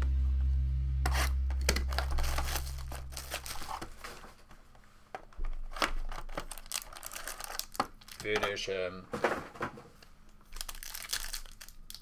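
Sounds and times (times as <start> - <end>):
low hum: 0.0 - 4.8
plastic wrap crinkling and tearing: 1.6 - 4.6, 5.3 - 8.7, 10.4 - 12.0.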